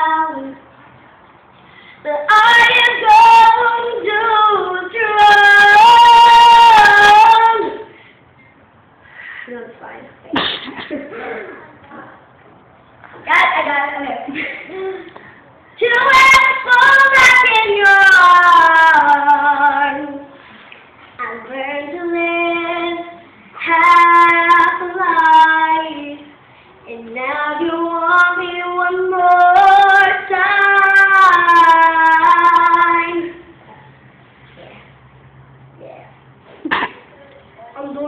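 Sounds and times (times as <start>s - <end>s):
girl singing unaccompanied: 0.0s - 0.7s, 2.0s - 8.0s, 13.2s - 20.5s, 21.1s - 33.6s, 37.1s - 38.0s
breaths: 1.6s - 2.1s, 7.9s - 9.6s, 14.7s - 15.8s.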